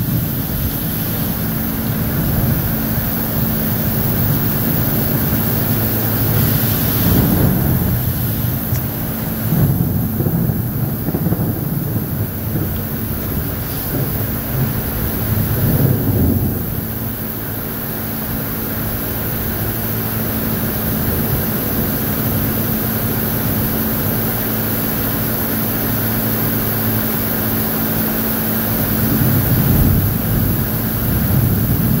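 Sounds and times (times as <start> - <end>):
thunder rumbling: 0.0 - 17.7, 28.7 - 32.0
constant low hum: 0.0 - 32.0
heavy rain: 0.0 - 32.0.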